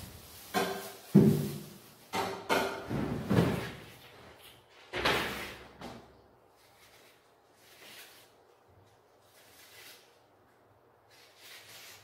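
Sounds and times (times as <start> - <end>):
fridge drawers and door knocking: 0.6 - 3.9.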